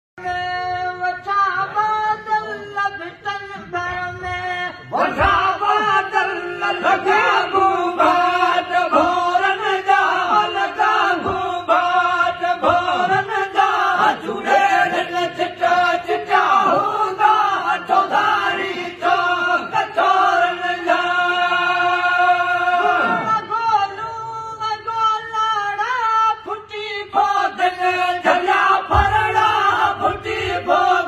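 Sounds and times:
men chanting together: 0:05.0 - 0:23.5, 0:27.2 - 0:31.0.

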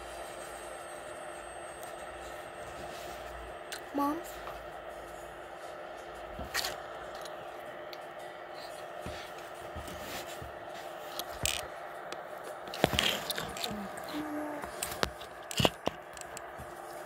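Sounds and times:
steady background hum: 0:00.0 - 0:17.0
phone handling clicks and scrapes: 0:11.1 - 0:16.7.

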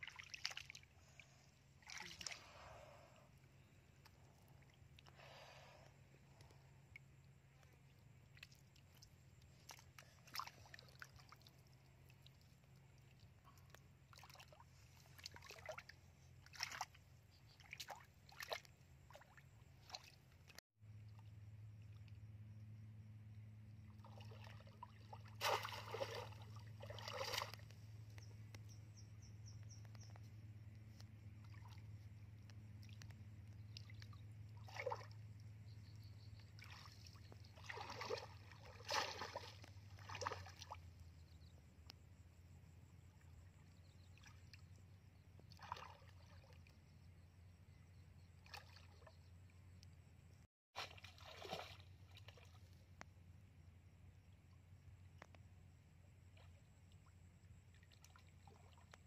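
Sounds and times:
muddy water splashing: 0:00.0 - 0:03.1, 0:04.0 - 0:21.2, 0:23.9 - 0:28.5, 0:30.8 - 0:41.0, 0:43.6 - 0:46.8, 0:48.4 - 0:49.2, 0:50.8 - 0:52.9, 0:56.4 - 0:59.0.

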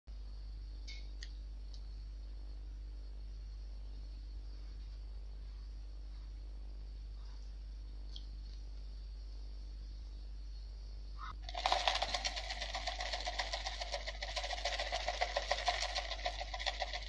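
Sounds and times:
low steady hum: 0:00.1 - 0:17.0
dry flakes rattling in plastic jar: 0:11.4 - 0:17.0.

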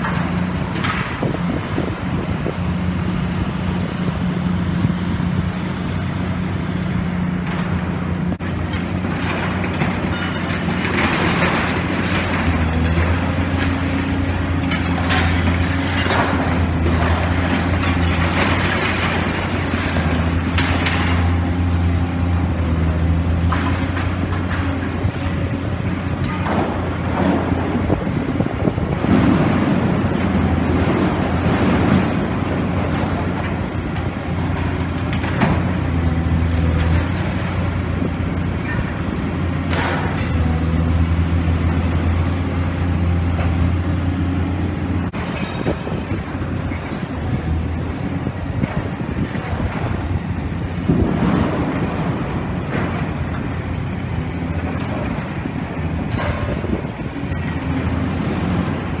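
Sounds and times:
excavator diesel engine droning: 0:00.0 - 0:59.0
debris crashing and clanking: 0:08.4 - 0:40.5, 0:45.0 - 0:53.8.

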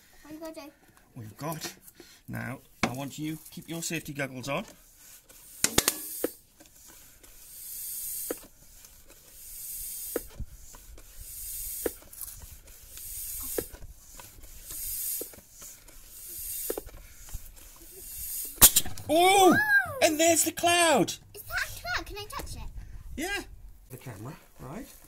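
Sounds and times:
floor pump hissing air: 0:04.8 - 0:18.8.

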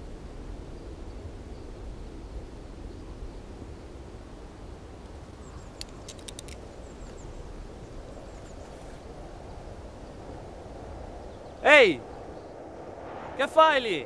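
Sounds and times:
sharp clicks: 0:05.7 - 0:06.6
steady low rumble: 0:12.0 - 0:14.0.

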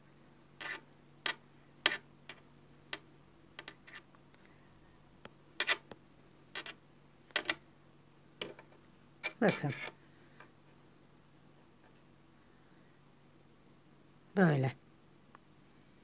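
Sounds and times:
knitting needles clicking: 0:00.6 - 0:04.4, 0:05.1 - 0:07.6.

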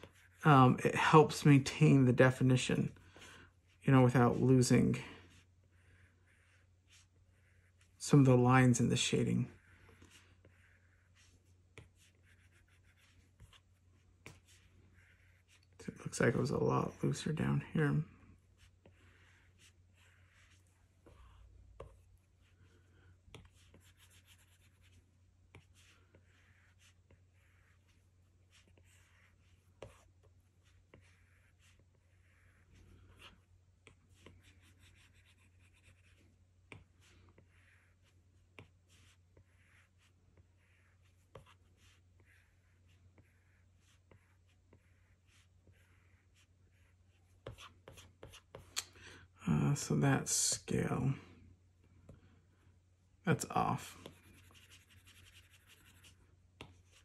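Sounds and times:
stylus scratching on glass screen: 0:09.5 - 0:16.3, 0:23.3 - 0:48.7, 0:53.6 - 0:57.0.

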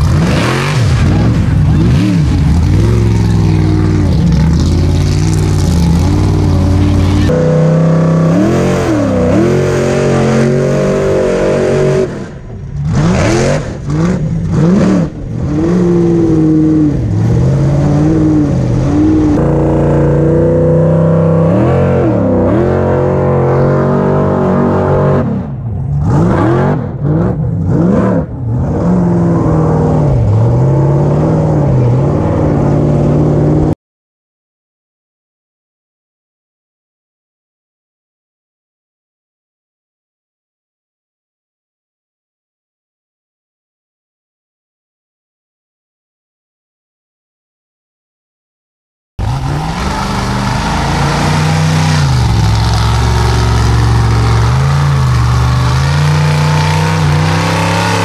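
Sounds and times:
buggy engine revving: 0:00.0 - 0:33.8, 0:49.2 - 0:58.0.

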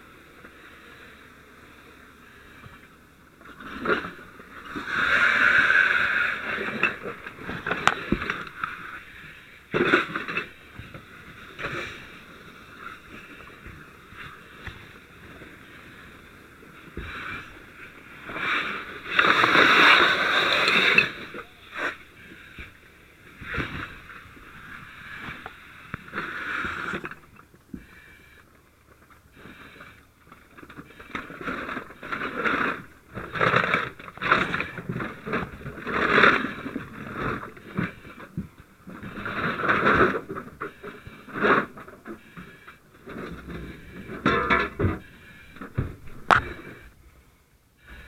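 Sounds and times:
gear and debris knocking and scraping: 0:03.4 - 0:09.1, 0:28.9 - 0:47.0
heavy breathing through a mask: 0:27.7 - 0:32.9, 0:40.5 - 0:48.0.

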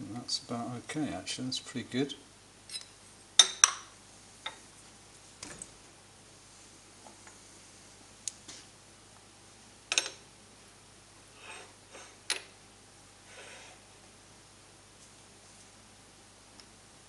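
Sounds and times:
metal scrapes: 0:11.4 - 0:12.2.

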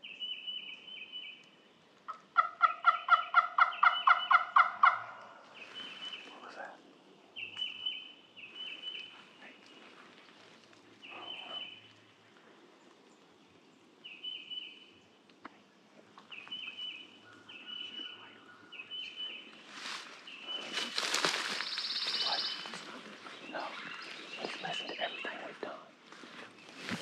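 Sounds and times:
songbird calling: 0:00.0 - 0:12.4, 0:14.0 - 0:15.2, 0:16.2 - 0:27.0
footsteps crunching dry leaves: 0:19.6 - 0:23.1, 0:26.1 - 0:27.0.

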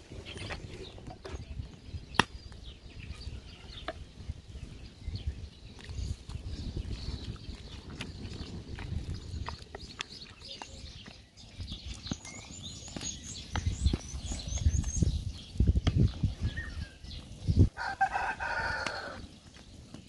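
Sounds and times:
small birds chirping: 0:00.0 - 0:20.0
rooster crowing: 0:17.8 - 0:19.2.

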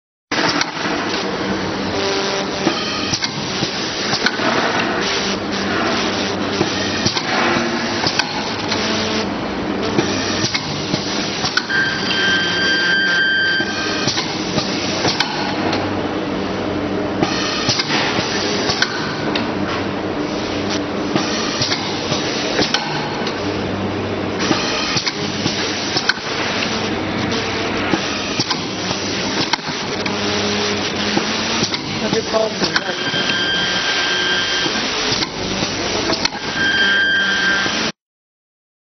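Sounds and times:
high steady tone: 0:11.2 - 0:14.1, 0:32.0 - 0:37.8.

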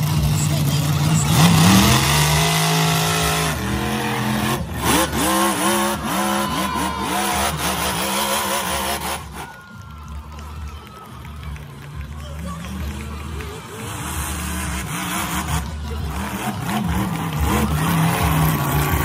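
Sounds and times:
monster truck engine revving: 0:00.0 - 0:09.9, 0:12.0 - 0:19.0.

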